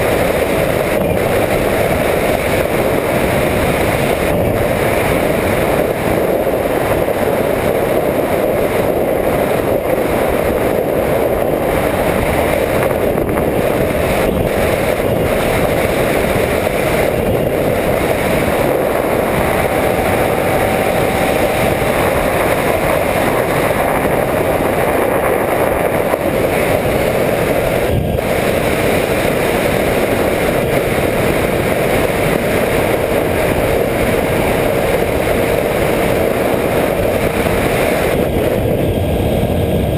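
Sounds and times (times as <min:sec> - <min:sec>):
rush of air in flight: 0:00.0 - 0:39.9.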